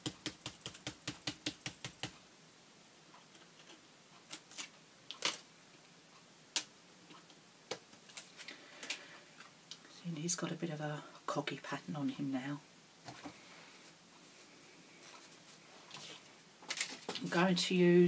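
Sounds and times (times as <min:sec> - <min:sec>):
stencils clicking and tapping: 0:00.0 - 0:02.2.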